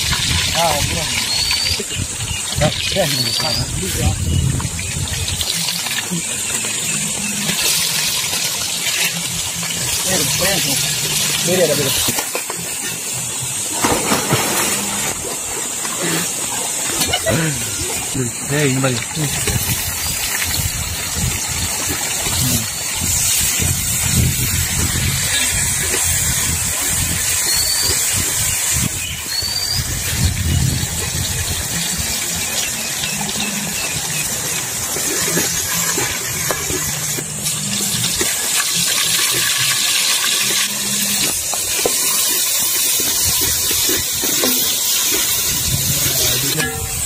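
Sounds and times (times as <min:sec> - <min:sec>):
onions and spices frying: 0:00.0 - 0:47.0
stream and small waterfall: 0:00.0 - 0:47.0
metal skimmer scraping a pot: 0:33.0 - 0:47.0.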